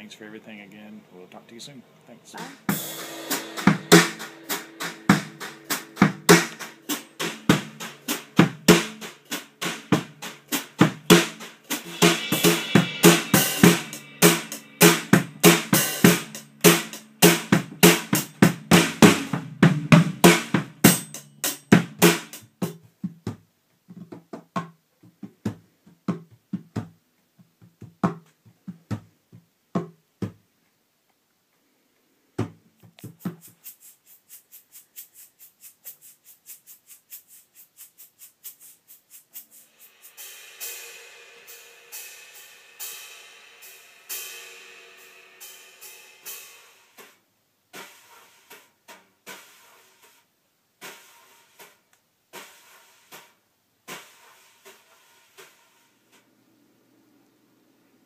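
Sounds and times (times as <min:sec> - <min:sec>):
drum kit playing: 0:02.3 - 0:23.4, 0:32.8 - 0:49.8.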